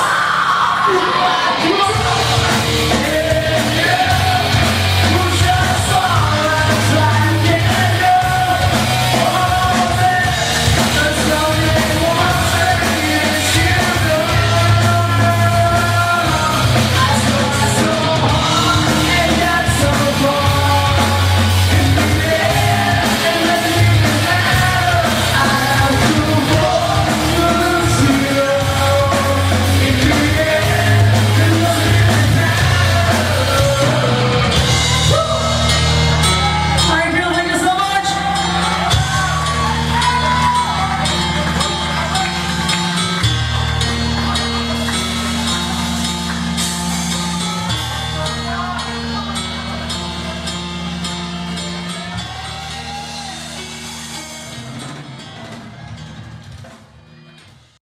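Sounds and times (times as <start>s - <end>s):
person singing: 0.0s - 55.5s
bass guitar: 0.0s - 57.3s
electric guitars: 0.0s - 57.7s
drums: 0.0s - 57.8s.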